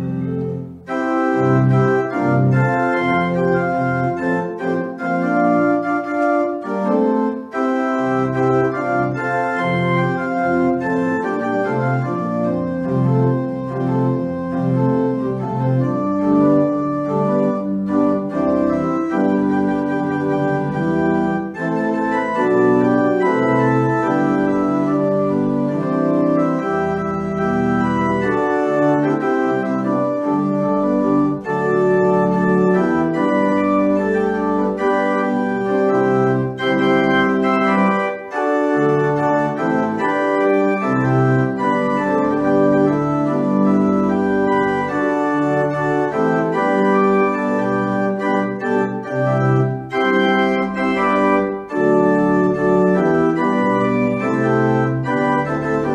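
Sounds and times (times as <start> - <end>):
church organ chords: 0.0 - 55.9.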